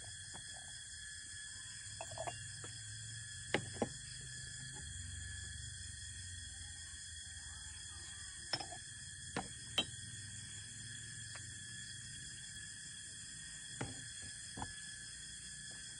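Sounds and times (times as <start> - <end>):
night insects chirring: 0.0 - 15.9
tea pouring into cups: 1.9 - 2.6
porcelain teaware clinking: 2.0 - 2.5, 8.5 - 8.8, 9.7 - 10.0.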